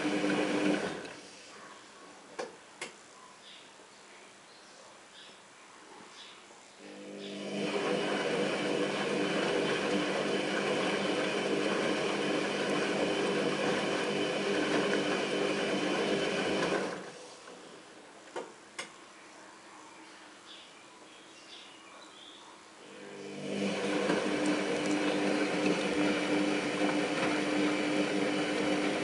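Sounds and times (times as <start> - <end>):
washing machine motor hum: 0.0 - 1.2, 6.8 - 17.2, 22.8 - 29.0.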